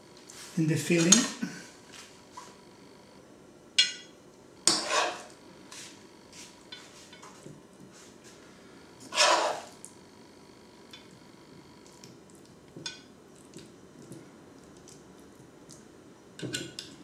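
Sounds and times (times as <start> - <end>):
spoon scraping in pan: 4.7 - 5.4, 9.0 - 9.8.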